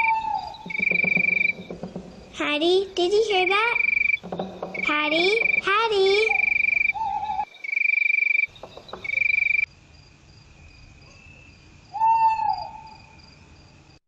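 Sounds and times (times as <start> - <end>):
animal call: 0.0 - 2.3, 3.5 - 7.8, 11.9 - 13.2
steady chirring: 0.0 - 7.0.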